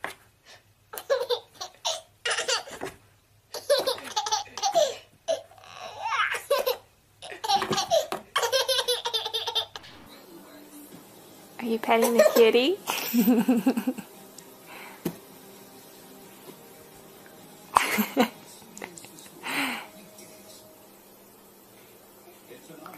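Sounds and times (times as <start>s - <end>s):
baby laughing: 0.9s - 2.9s, 3.5s - 10.0s, 12.0s - 14.0s.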